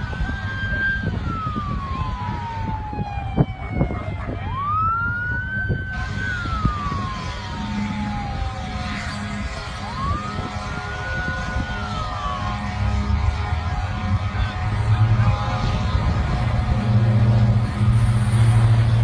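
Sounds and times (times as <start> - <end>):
emergency vehicle siren wailing: 0.0 - 19.0
steady low rumble: 0.0 - 19.0.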